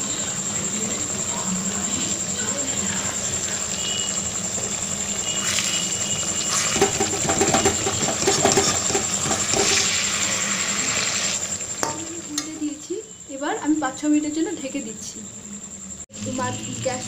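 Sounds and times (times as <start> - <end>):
fish sizzling in oil: 0.1 - 13.1
rapid popping of frying: 2.1 - 12.8.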